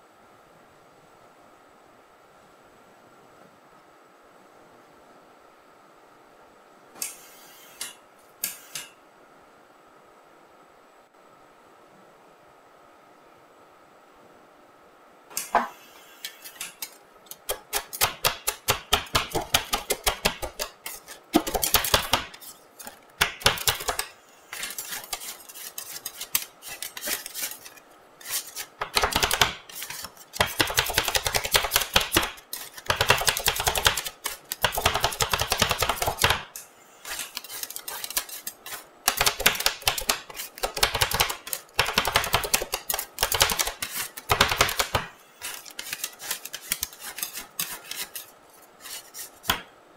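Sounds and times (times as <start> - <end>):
metal spatulas chopping on steel plate: 16.4 - 49.6.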